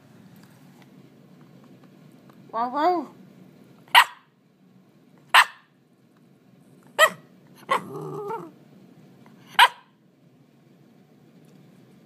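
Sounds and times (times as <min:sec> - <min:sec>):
dog barking: 0:03.9 - 0:04.3, 0:05.3 - 0:05.8, 0:07.0 - 0:07.9, 0:09.5 - 0:10.0
dog growling low: 0:07.6 - 0:08.6.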